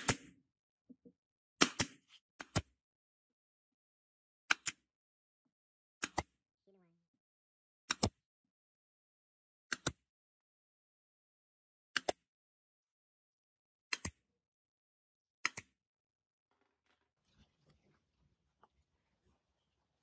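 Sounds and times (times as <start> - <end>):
nail gun firing: 0.0 - 0.4, 1.6 - 2.6.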